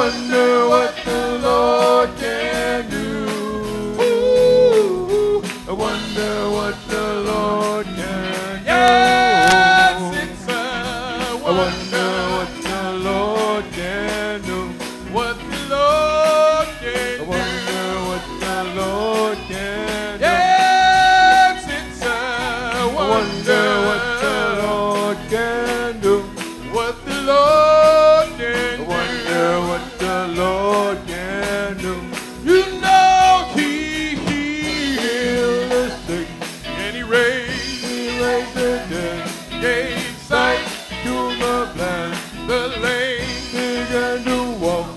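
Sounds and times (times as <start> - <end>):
band with drums: 0.0 - 44.9
lead vocal singing gospel: 0.0 - 44.9.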